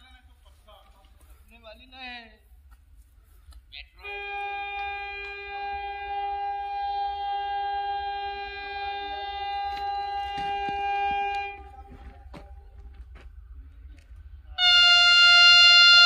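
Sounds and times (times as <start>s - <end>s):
train horn blast: 3.9s - 12.3s, 14.5s - 16.0s.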